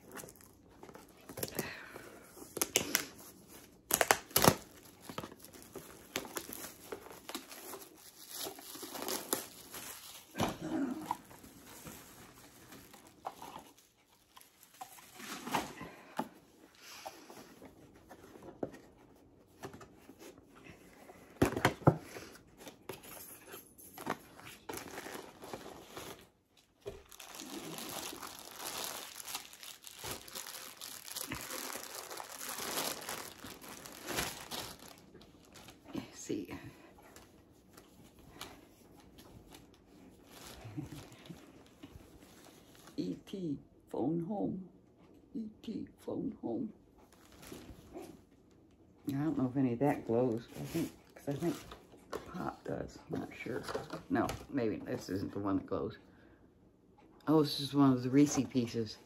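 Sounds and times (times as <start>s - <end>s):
packaging tearing and crinkling: 2.5s - 15.7s, 24.6s - 35.8s.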